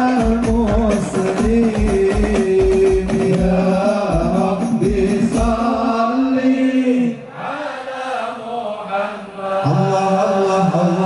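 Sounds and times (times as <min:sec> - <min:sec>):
drum beats: 0:00.0 - 0:06.1
men chanting: 0:00.0 - 0:11.0.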